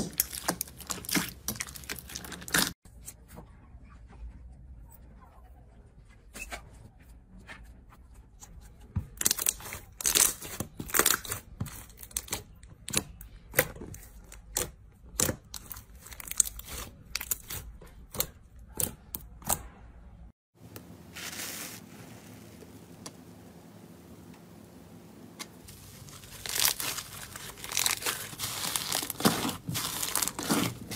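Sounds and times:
hands squishing slime: 0:00.0 - 0:02.8, 0:25.7 - 0:30.9
soft slime crackle: 0:25.6 - 0:30.9.

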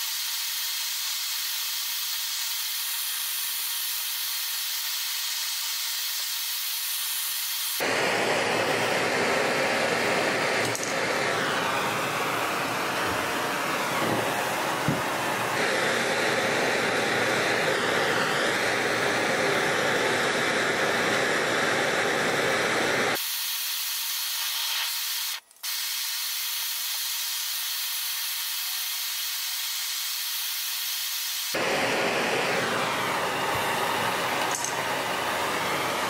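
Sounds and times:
gas torch flame hissing: 0:00.0 - 0:36.0.

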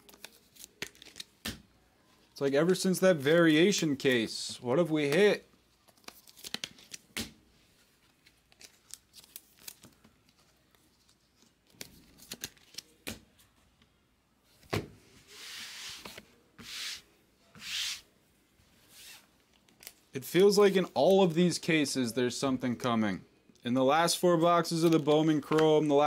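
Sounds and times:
cards clicking and rubbing: 0:00.0 - 0:01.6, 0:05.0 - 0:07.4, 0:08.0 - 0:13.2.

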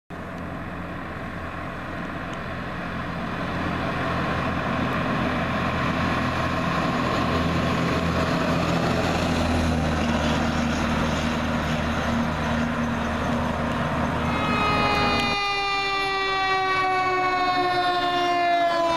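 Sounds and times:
fire truck diesel engine hum: 0:00.1 - 0:18.9
road noise: 0:00.1 - 0:18.9.

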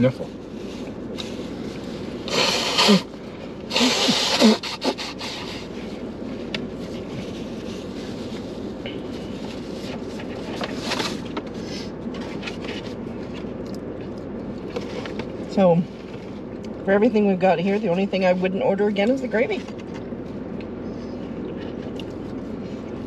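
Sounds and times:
low car hum: 0:00.0 - 0:23.0
man blowing his nose: 0:02.3 - 0:03.1, 0:03.7 - 0:05.7.

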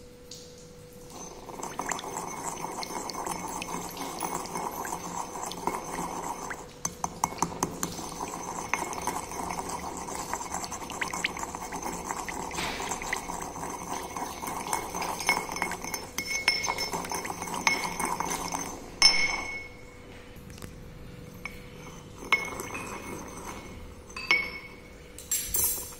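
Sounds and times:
pestle clinking on mortar: 0:01.2 - 0:19.8, 0:21.4 - 0:25.9
pestle grinding in mortar: 0:01.3 - 0:19.6.

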